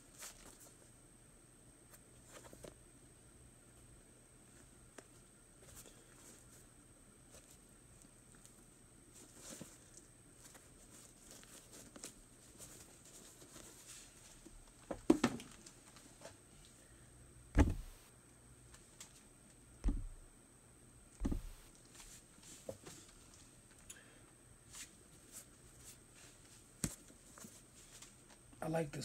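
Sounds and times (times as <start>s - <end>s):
tissue paper rustling: 9.1s - 14.5s
shoes thumping on box: 17.6s - 18.0s, 19.8s - 20.2s, 21.2s - 21.7s.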